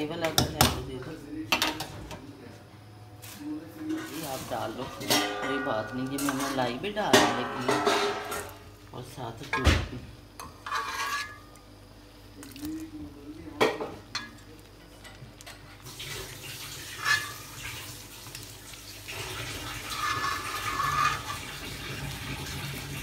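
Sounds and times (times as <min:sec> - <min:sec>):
steel ladle clanking on pot: 0:05.0 - 0:08.6
liquid pouring into hot pan: 0:12.4 - 0:13.0, 0:15.7 - 0:23.0.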